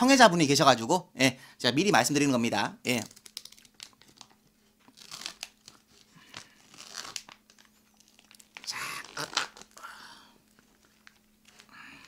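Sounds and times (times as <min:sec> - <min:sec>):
plastic tearing: 0:02.9 - 0:09.9, 0:10.5 - 0:11.8
plastic wrapping crinkling: 0:02.9 - 0:12.0.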